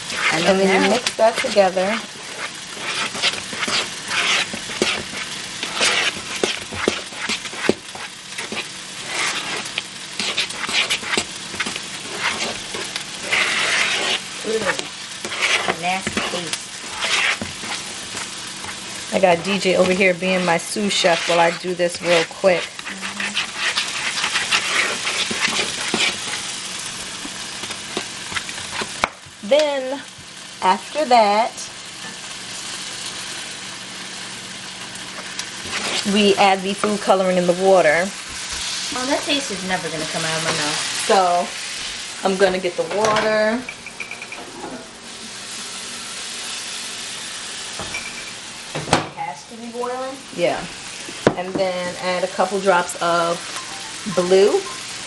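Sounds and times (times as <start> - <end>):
spoon stirring dry flour: 0.1 - 26.4, 35.6 - 37.1.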